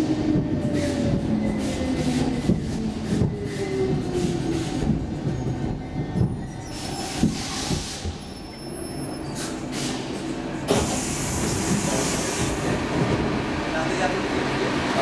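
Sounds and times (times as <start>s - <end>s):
train humming at platform: 0.0s - 15.0s.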